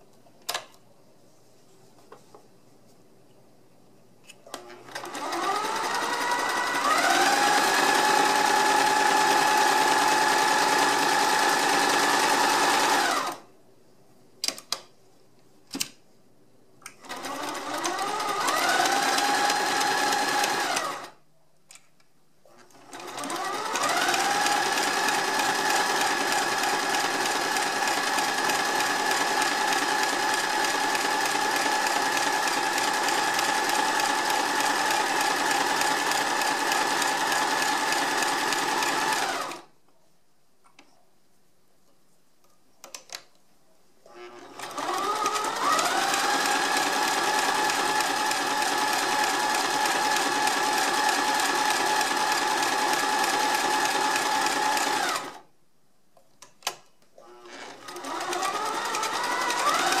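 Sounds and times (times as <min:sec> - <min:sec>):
sewing machine stitching: 0:04.5 - 0:13.4, 0:17.0 - 0:21.1, 0:22.5 - 0:39.7, 0:44.1 - 0:55.4, 0:57.2 - 1:00.0.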